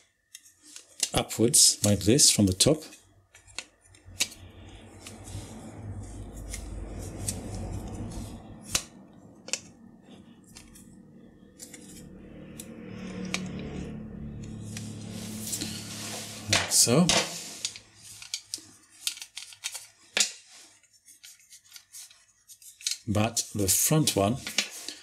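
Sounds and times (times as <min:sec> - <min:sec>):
plastic parts handling noise: 0:02.8 - 0:12.1, 0:14.8 - 0:23.2
low rumble of parts shifted: 0:03.3 - 0:19.6
metal tool clicks and scrapes: 0:10.4 - 0:15.9.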